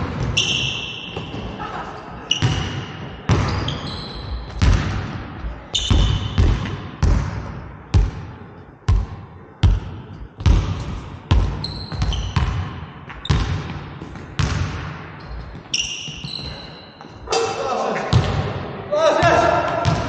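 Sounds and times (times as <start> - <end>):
sneakers squeaking: 0.0 - 7.2, 9.7 - 18.4
basketball bouncing on hardwood floor: 10.4 - 12.7, 13.3 - 15.0.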